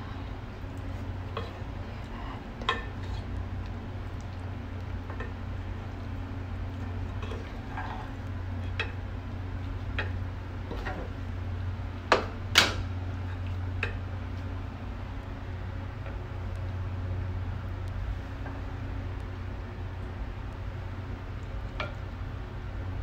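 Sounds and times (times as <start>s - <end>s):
steady low hum: 0.0s - 23.0s
wooden spatula scraping a pot: 0.8s - 3.4s, 6.8s - 9.0s, 9.6s - 11.2s.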